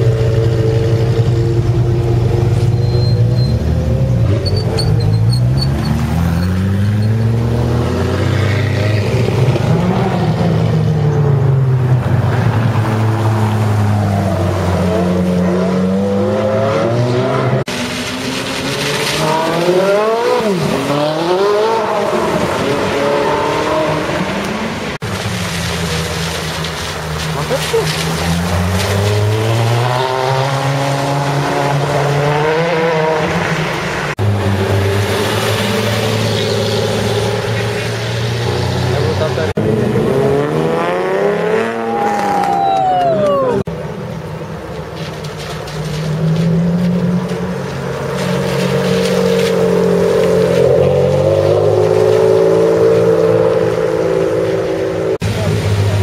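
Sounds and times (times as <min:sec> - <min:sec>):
tyres hissing on wet road: 0:17.4 - 0:31.9, 0:33.2 - 0:39.6, 0:44.3 - 0:56.0.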